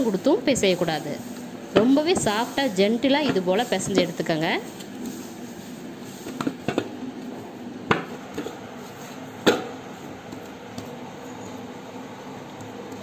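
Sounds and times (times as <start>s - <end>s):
dough being kneaded by hand: 0.0s - 13.0s.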